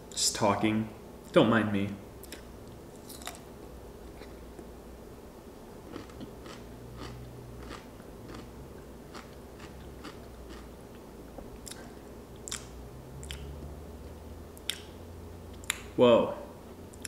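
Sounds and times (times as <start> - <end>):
person crunching pickle: 3.0 - 3.4, 5.9 - 8.5.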